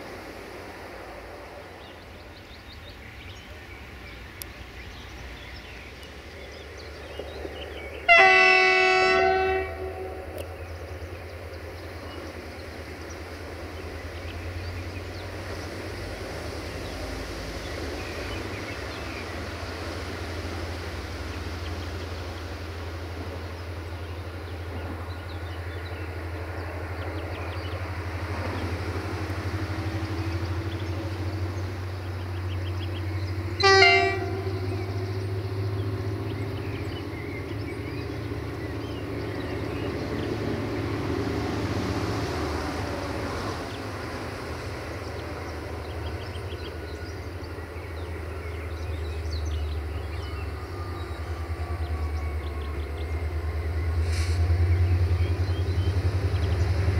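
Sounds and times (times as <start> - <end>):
diesel engine low rumble: 0.0 - 56.9
locomotive horn blast: 8.1 - 10.5, 33.6 - 35.2.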